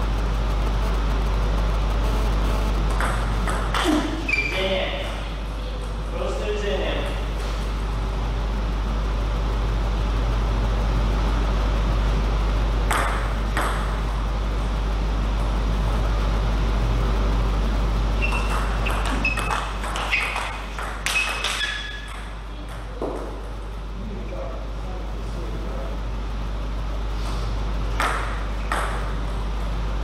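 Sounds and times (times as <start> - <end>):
steady low hum: 0.0 - 30.0
table tennis ball hits: 2.9 - 5.2, 12.9 - 14.1, 18.2 - 23.5, 27.9 - 29.4.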